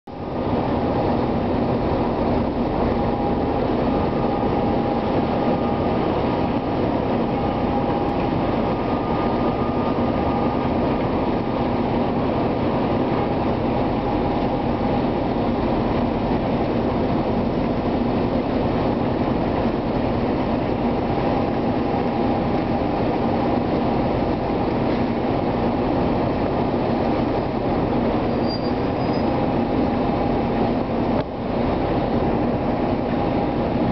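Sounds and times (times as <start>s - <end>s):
diesel locomotive engine drone: 0.1s - 33.9s
faint whine: 1.8s - 11.6s.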